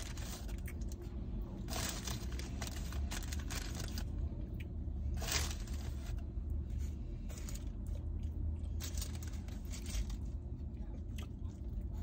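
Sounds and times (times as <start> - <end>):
low car cabin hum: 0.0 - 12.0
paper wrapper crinkling: 1.6 - 4.2, 5.2 - 6.2, 8.8 - 10.3.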